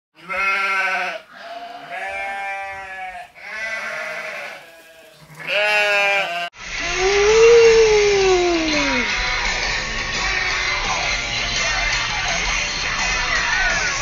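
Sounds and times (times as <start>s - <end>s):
sheep bleating: 0.2s - 6.5s
loud rock music: 8.1s - 14.0s.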